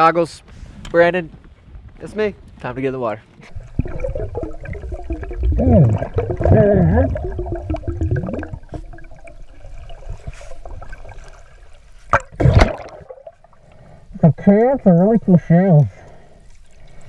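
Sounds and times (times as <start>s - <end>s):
underwater water gurgling: 3.5s - 14.0s.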